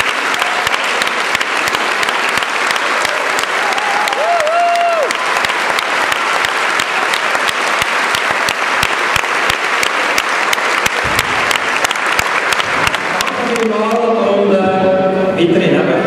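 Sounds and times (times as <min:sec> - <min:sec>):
audience applauding: 0:00.0 - 0:14.2
person cheering: 0:02.9 - 0:05.2.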